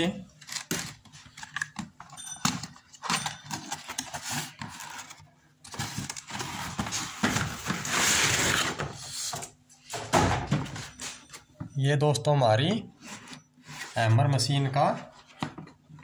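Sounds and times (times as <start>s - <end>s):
cardboard scraping and rustling: 3.0s - 9.4s.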